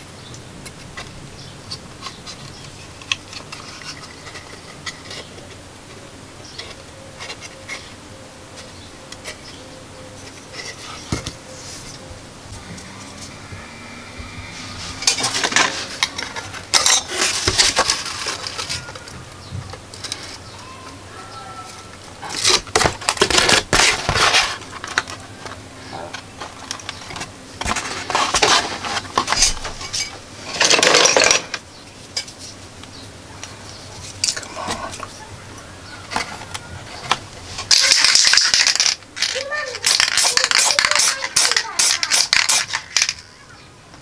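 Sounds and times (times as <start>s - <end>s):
scraping: 10.2s - 19.2s
cardboard rustling: 14.6s - 20.5s, 21.7s - 31.3s.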